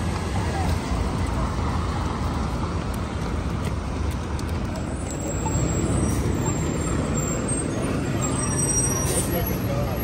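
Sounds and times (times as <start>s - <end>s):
traffic rumble: 0.0s - 10.0s
faint high squeal: 5.5s - 9.7s.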